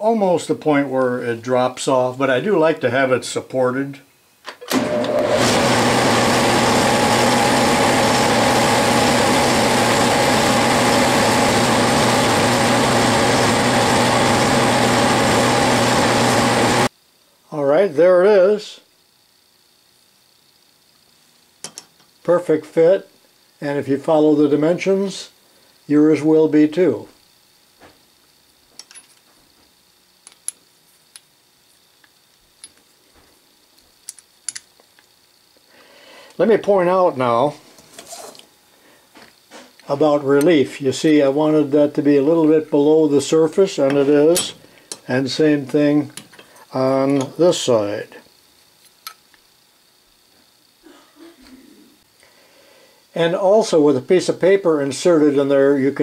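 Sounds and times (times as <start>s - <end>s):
cutoff tool whine: 4.4s - 16.9s, 39.1s - 48.2s
metal lathe running: 4.7s - 16.9s
steel parts clicking: 33.8s - 35.2s.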